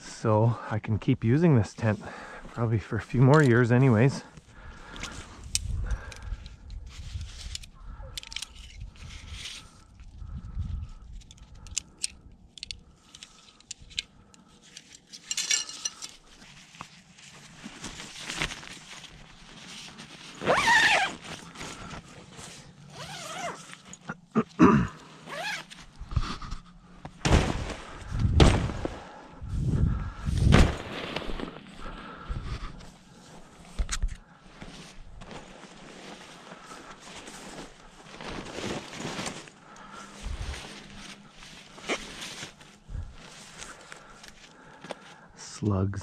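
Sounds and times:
nylon tent rustling: 0:06.8 - 0:11.0, 0:14.4 - 0:45.7
zipper pulled: 0:20.4 - 0:22.0, 0:22.8 - 0:24.1, 0:25.2 - 0:26.3.

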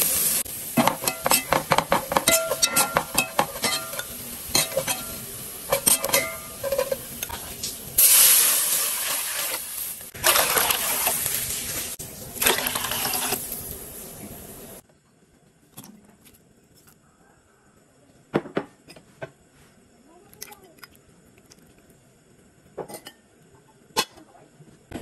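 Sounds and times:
garlic frying in oil: 0:00.0 - 0:14.8
loud hissing of boiling liquid: 0:00.0 - 0:14.8
metal spatula scraping a pot: 0:00.8 - 0:07.5, 0:12.4 - 0:13.4.

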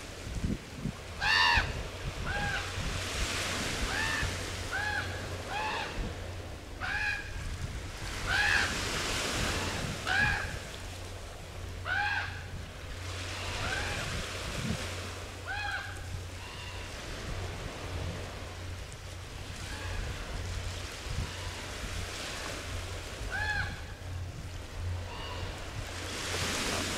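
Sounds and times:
waves washing: 0:00.0 - 0:26.9
wind: 0:00.0 - 0:26.9
raven calling: 0:01.2 - 0:02.7, 0:03.8 - 0:06.1, 0:06.8 - 0:07.4, 0:08.2 - 0:08.8, 0:09.6 - 0:10.6, 0:11.8 - 0:12.5, 0:15.4 - 0:17.0, 0:23.2 - 0:24.0.

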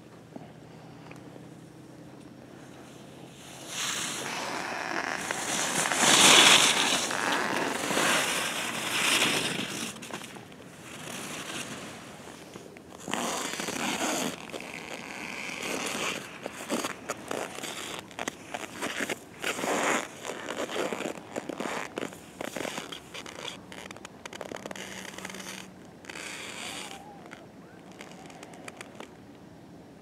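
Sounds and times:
skis scraping on snow: 0:03.4 - 0:27.0.

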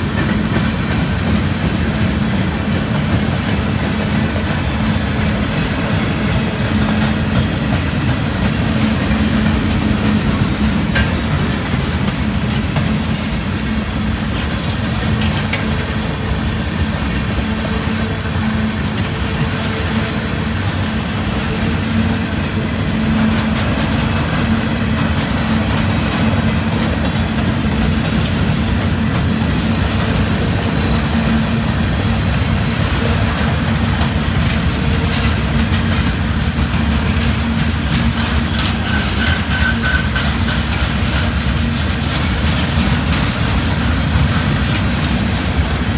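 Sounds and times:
freight train wheels rumbling on rail: 0:00.0 - 0:45.9
train wheels squealing: 0:12.0 - 0:23.4, 0:38.0 - 0:41.4.

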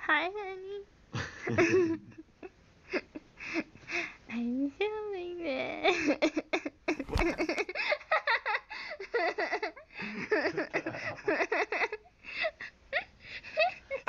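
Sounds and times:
phone handling bump: 0:07.0 - 0:07.6.

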